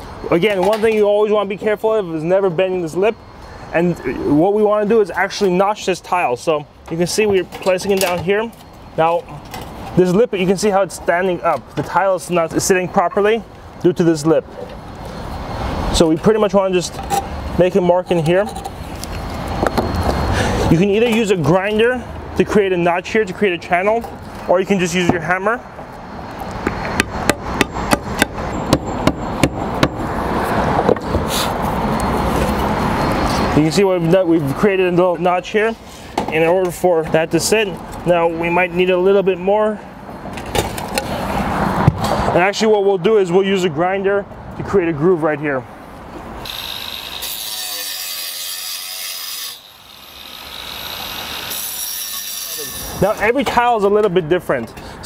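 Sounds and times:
hammer striking roof tile: 27.0 - 30.0
angle grinder grinding tile: 46.5 - 53.0.

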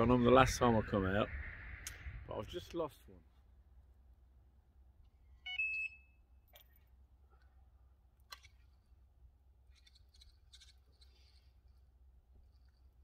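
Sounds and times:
bite alarm beep: 5.4 - 6.2.

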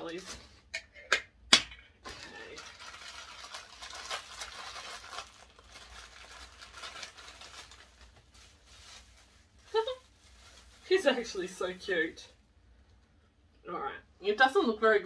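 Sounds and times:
plastic wrapping crinkling: 2.0 - 12.2.

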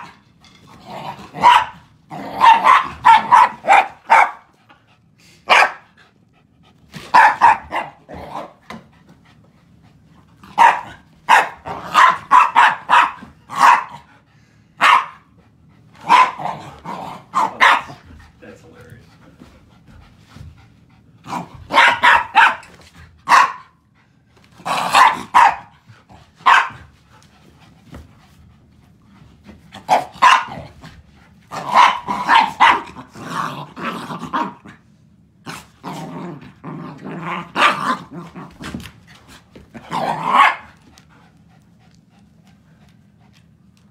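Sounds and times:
dogs play-growling: 0.0 - 3.8, 6.0 - 11.0, 11.6 - 12.1, 15.3 - 18.4, 19.1 - 21.9, 23.9 - 26.4, 27.0 - 43.9
dogs barking: 1.4 - 4.5, 5.5 - 5.9, 7.1 - 8.1, 10.5 - 14.0, 14.8 - 15.3, 16.0 - 16.6, 17.2 - 18.0, 21.7 - 22.7, 23.3 - 23.8, 24.8 - 25.7, 26.4 - 26.8, 29.9 - 30.7, 31.6 - 33.0, 40.0 - 40.7.

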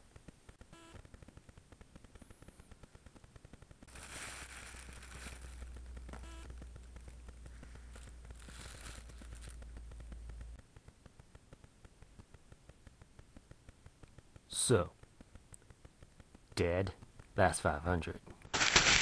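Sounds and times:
plastic bag rustling: 3.9 - 6.2, 7.6 - 9.6, 18.5 - 19.0.

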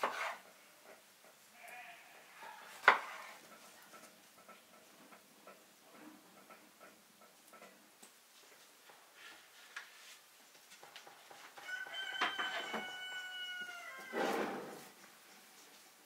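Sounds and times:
rooster crowing: 11.6 - 14.8.

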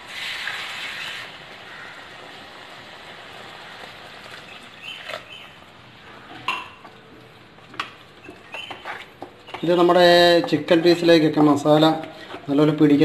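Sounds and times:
water hissing in hot pan: 0.0 - 5.0
masala sizzling: 0.0 - 13.0.

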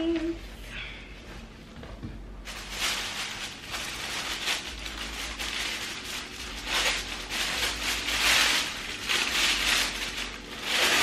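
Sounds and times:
paper wrapping crinkling: 2.4 - 11.0.

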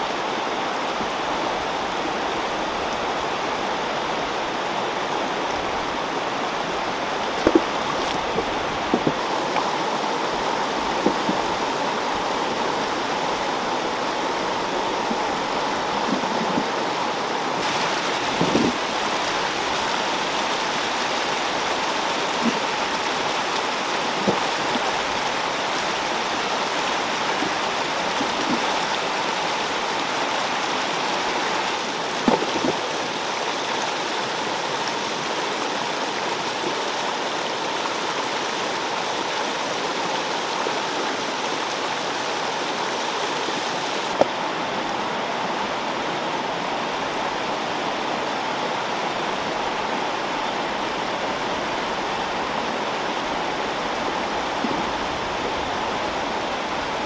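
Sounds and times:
stream rushing over rocks: 0.0 - 57.0
brief knocks: 7.4 - 7.7.

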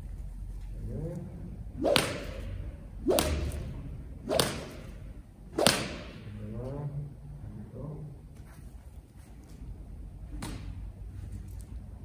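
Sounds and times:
whip swishing and cracking: 1.8 - 6.3.

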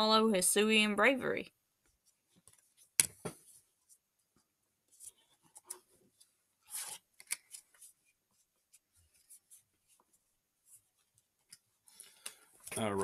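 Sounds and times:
cards scraping and ticking: 4.9 - 10.1, 11.4 - 12.9.

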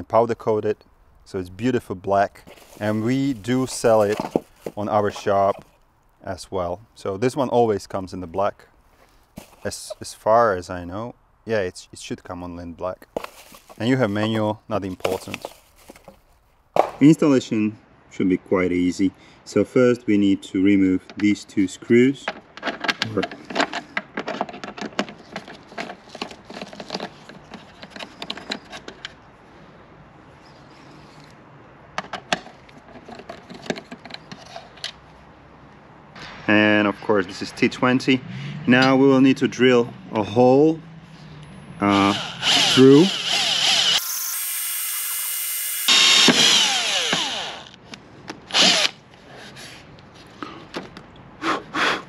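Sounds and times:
cordless drill whining: 41.9 - 47.8, 48.5 - 49.0.

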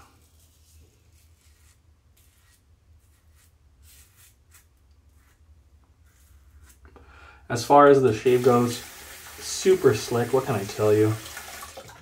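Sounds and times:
razor scraping stubble: 1.3 - 5.4.

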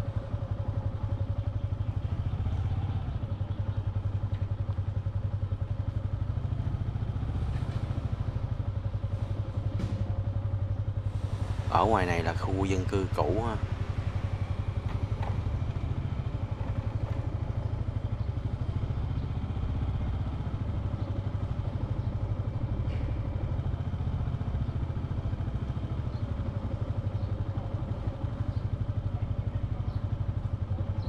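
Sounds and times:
motorbike engine running: 0.0 - 31.0.

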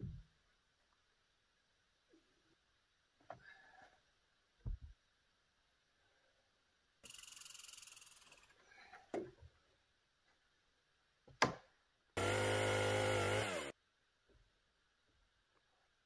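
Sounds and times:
chainsaw buzzing: 12.2 - 13.8.

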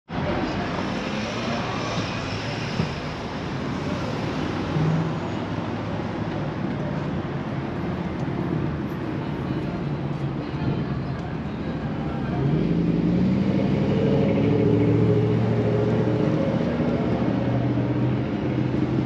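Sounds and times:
motor vehicle noise: 0.1 - 19.0.

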